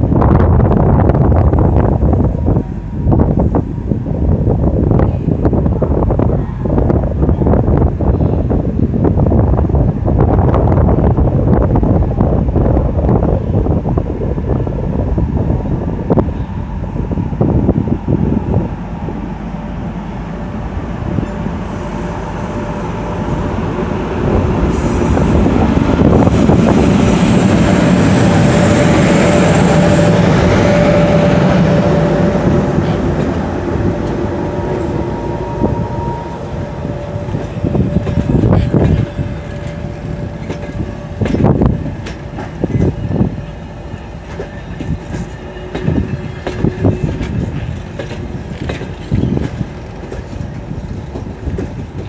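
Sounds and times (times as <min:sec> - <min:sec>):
electric locomotive passing: 0:00.0 - 0:52.0.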